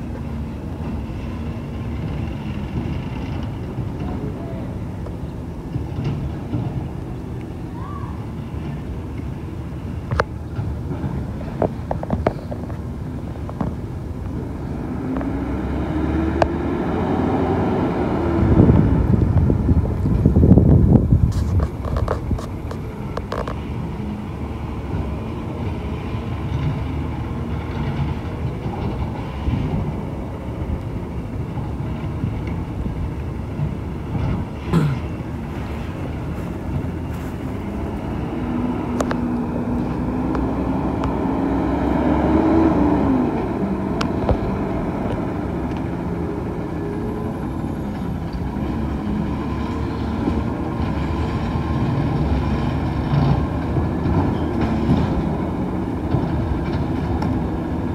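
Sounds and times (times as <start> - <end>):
diesel engine running: 0.0 - 57.9.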